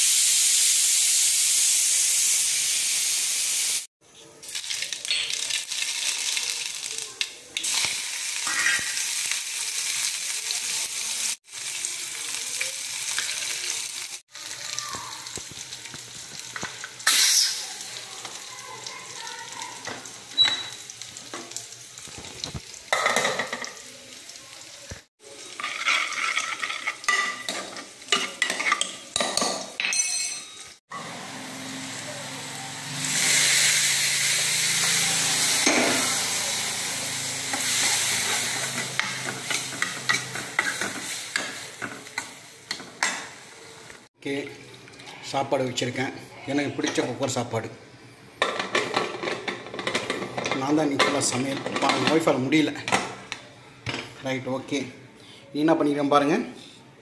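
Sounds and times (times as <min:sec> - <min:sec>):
oil and food sizzling: 0:00.0 - 0:55.0.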